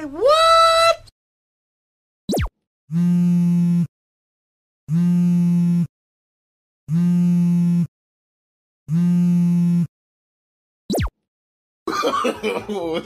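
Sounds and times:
mobile phone vibrating buzz: 2.9 - 3.9, 4.9 - 5.9, 6.9 - 7.9, 8.9 - 9.9.

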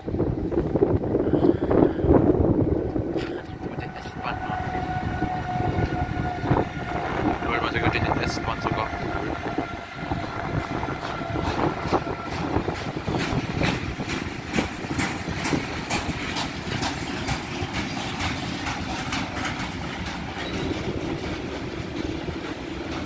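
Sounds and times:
steady high tone: 3.2 - 10.1
train wheels clicking over rail joints: 10.5 - 23.0.

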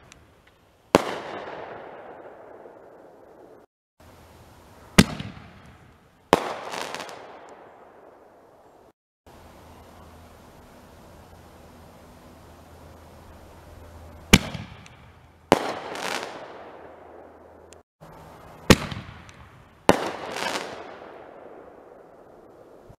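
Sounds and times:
fireworks bangs: 0.0 - 3.7, 4.9 - 8.2, 14.3 - 17.0, 18.6 - 22.9.

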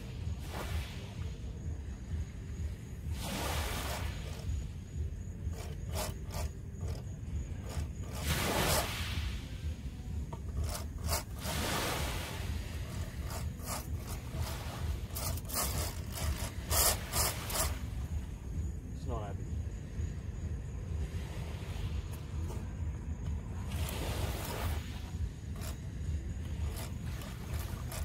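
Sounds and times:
fishing reel scraping and clicking: 3.9 - 4.8, 5.4 - 8.9, 10.3 - 17.8, 23.8 - 28.0.

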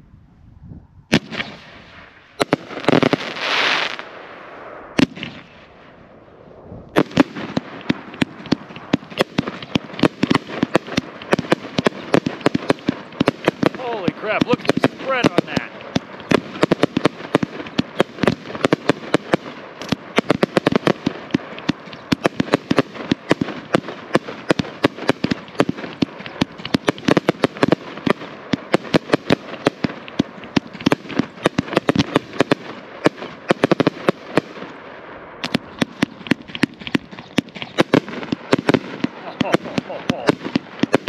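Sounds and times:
firework shells cracking: 6.9 - 34.8, 35.4 - 41.0.

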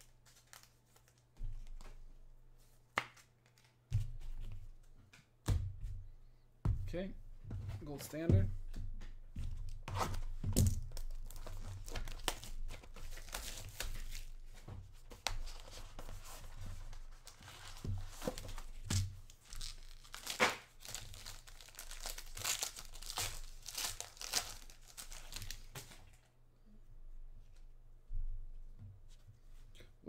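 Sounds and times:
packaging tearing and crinkling: 10.0 - 14.4, 17.2 - 25.9.

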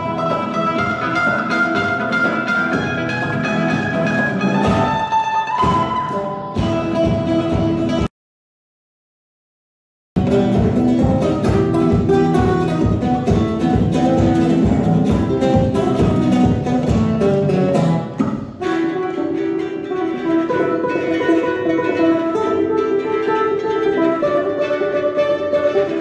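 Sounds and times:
acoustic guitars strumming: 0.0 - 8.1, 10.2 - 26.0
picked guitar melody: 0.0 - 8.1, 10.2 - 26.0.

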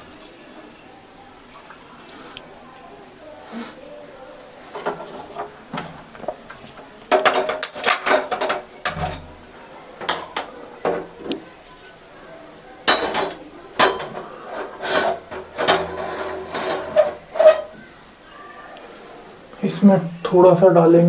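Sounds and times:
iron pan clanking on stove: 12.9 - 17.7.

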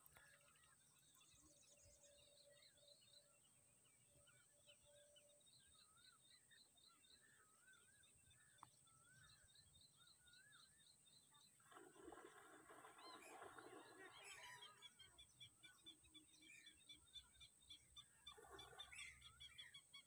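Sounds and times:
birds chirping: 0.0 - 20.0
warbling whistled birdsong: 0.0 - 20.0.

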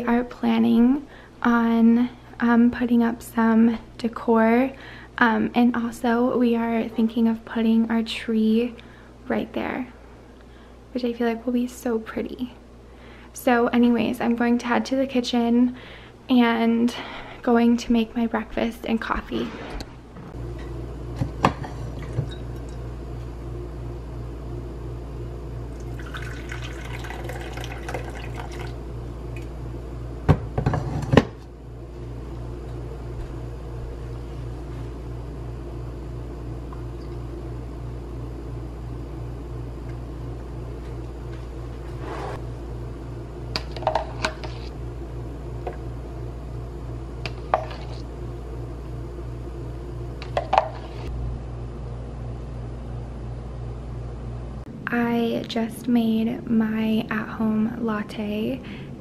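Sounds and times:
steady low hum: 0.0 - 59.0
coffee pouring into a cup: 25.7 - 29.5.

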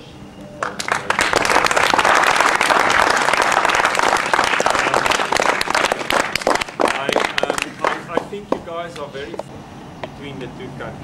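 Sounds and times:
small group applauding: 0.6 - 8.4.

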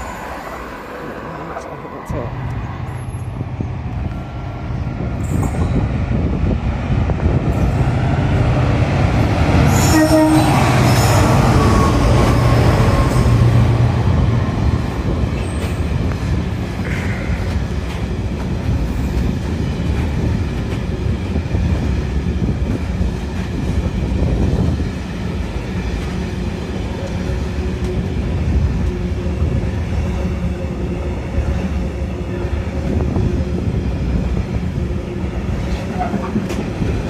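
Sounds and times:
wheel-on-rail rumble: 13.5 - 37.0.

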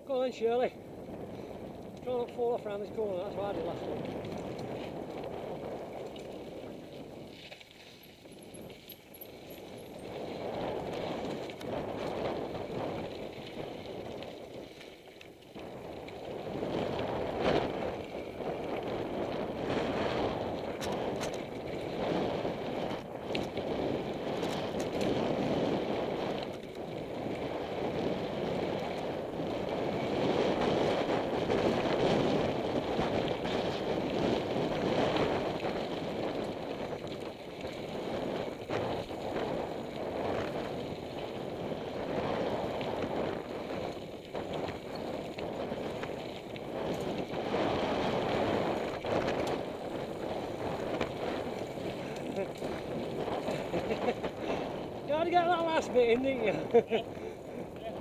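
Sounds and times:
bike clicks and knocks: 3.8 - 29.5, 42.0 - 54.7
wind on microphone: 8.2 - 14.8, 15.5 - 58.0
tyres crunching over gravel: 33.9 - 58.0.

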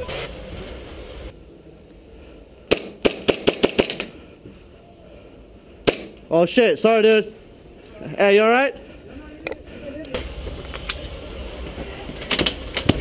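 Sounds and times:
airsoft pistol rapid cracks: 2.7 - 4.1.

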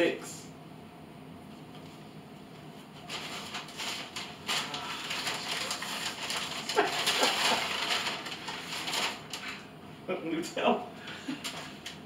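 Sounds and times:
paper bag rustling: 2.9 - 9.6, 11.1 - 12.0.

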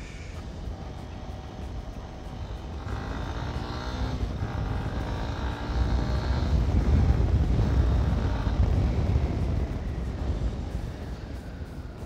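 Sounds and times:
motorcycle engine running: 0.0 - 12.0
wind rumble on microphone: 0.0 - 12.0.

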